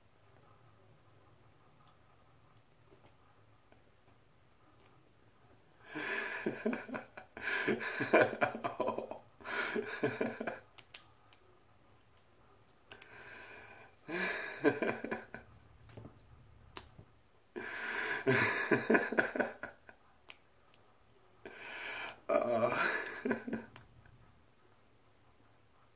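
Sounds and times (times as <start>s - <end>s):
man laughing loudly: 5.9s - 10.6s, 14.1s - 15.4s, 18.2s - 19.7s, 22.3s - 23.7s.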